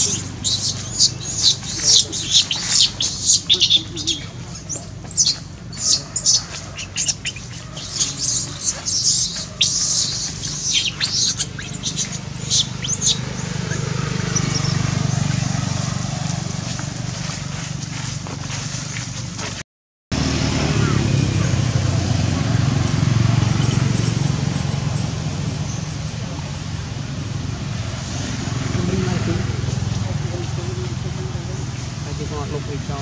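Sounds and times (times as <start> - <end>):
baby monkey squealing: 0.0 - 14.9.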